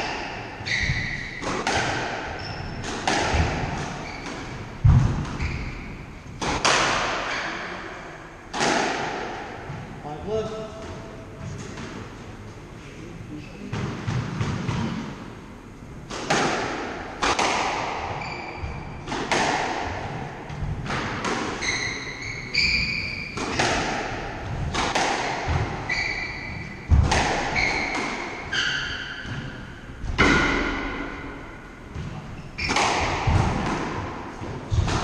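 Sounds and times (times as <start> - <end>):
squash ball hitting racket and walls: 0.0 - 12.4, 13.6 - 35.0
shoes squeaking on wooden floor: 0.1 - 1.5, 2.3 - 4.6, 5.3 - 6.1, 18.1 - 19.1, 21.6 - 23.6, 25.8 - 26.8, 27.4 - 29.5.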